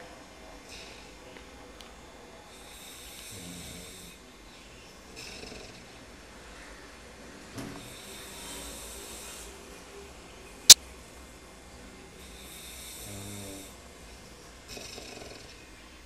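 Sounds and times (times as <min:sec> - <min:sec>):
man snoring: 0:02.6 - 0:04.2, 0:12.4 - 0:13.8.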